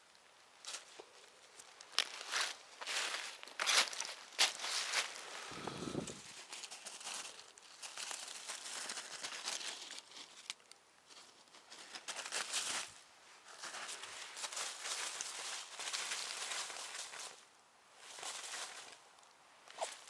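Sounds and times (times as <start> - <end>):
dry leaves rustling and crackling: 0.6 - 20.0.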